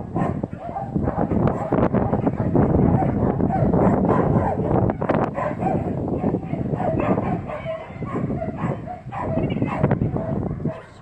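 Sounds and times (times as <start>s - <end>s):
dog whimpering: 7.0s - 9.9s.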